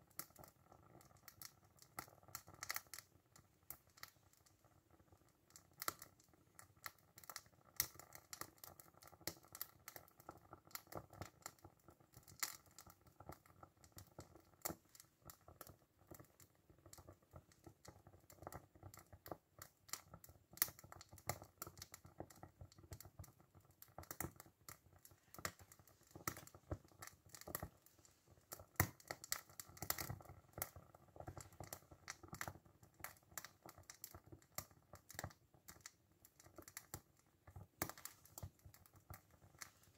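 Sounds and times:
faint ticking and crackling: 0:00.0 - 0:39.9.

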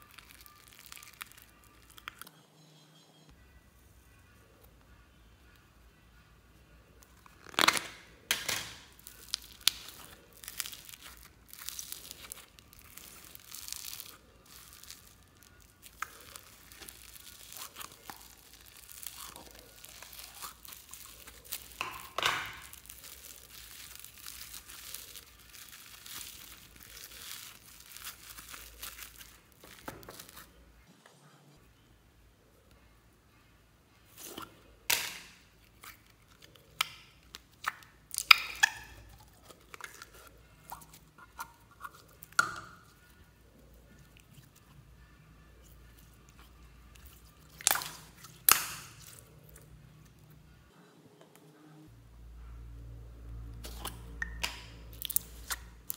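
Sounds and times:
foam slime crackling: 0:00.0 - 0:02.3, 0:07.3 - 0:30.5, 0:46.0 - 0:49.6, 0:53.6 - 0:55.9.

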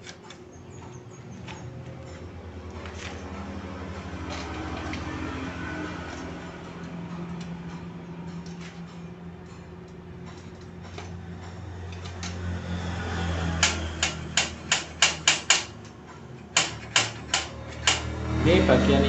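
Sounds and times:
steady low hum: 0:00.0 - 0:15.0
sharp metallic mechanism clicks: 0:13.5 - 0:18.2.

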